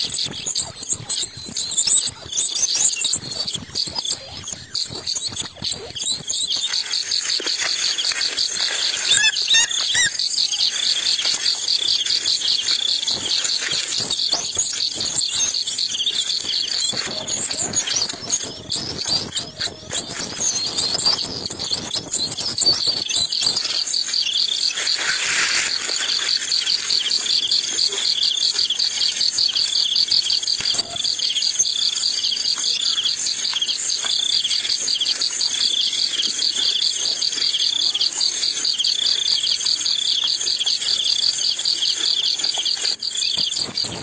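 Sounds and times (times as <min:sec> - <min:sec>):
lower chirp: 0:00.0 - 0:24.7
crickets chirring: 0:00.0 - 0:44.0
scuffling and rustling: 0:06.6 - 0:09.3.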